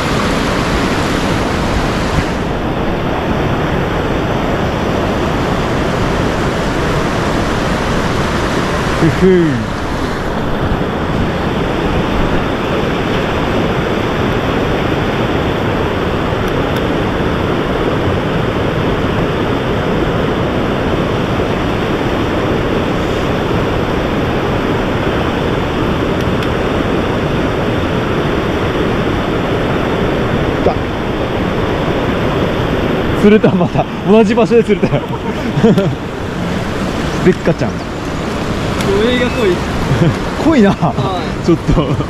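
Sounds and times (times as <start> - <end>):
stream water rushing: 0.0 - 42.0.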